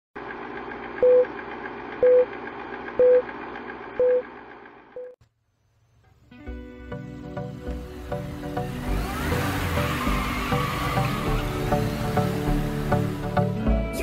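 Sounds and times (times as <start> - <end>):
music: 6.3 - 14.0.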